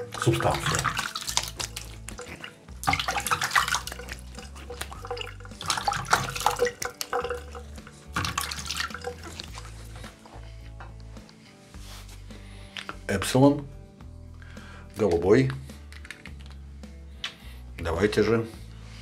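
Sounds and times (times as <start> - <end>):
tap water running and splashing: 0.0 - 10.3.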